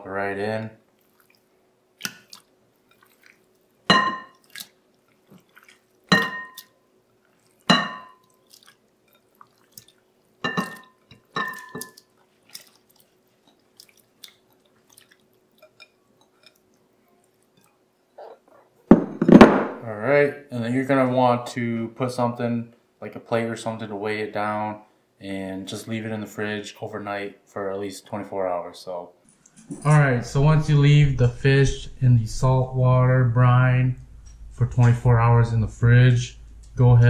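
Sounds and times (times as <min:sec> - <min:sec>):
glass bowls clinking: 0:03.9 - 0:04.4, 0:06.1 - 0:06.8, 0:07.7 - 0:08.3, 0:10.4 - 0:12.1.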